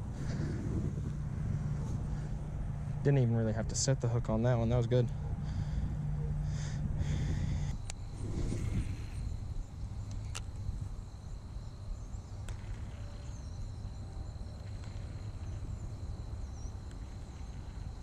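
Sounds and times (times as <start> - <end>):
wind rumble on microphone: 0.0 - 18.0.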